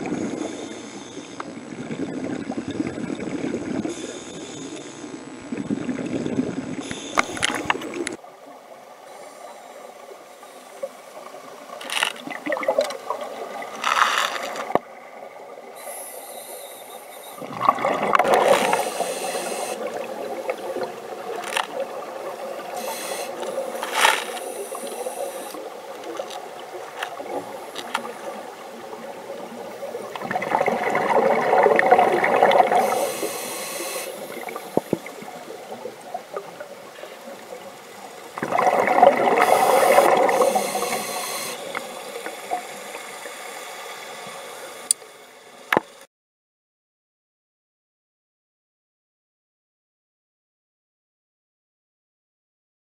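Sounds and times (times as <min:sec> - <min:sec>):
steady underwater hiss: 0:00.0 - 0:46.1
gurgling bubble bursts: 0:12.3 - 0:13.6, 0:17.4 - 0:18.8, 0:29.1 - 0:33.0, 0:38.4 - 0:40.9.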